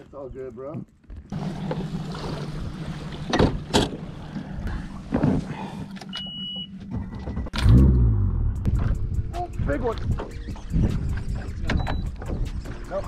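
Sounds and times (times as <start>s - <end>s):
outboard motor running: 1.3s - 6.1s.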